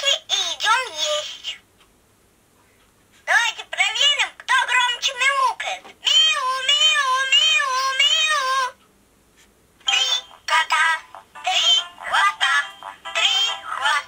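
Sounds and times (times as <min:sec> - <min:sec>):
toy voice clip: 0:00.0 - 0:01.6, 0:03.3 - 0:08.7, 0:09.9 - 0:14.0
toy cartoon voice singing: 0:06.1 - 0:08.7, 0:09.9 - 0:14.0.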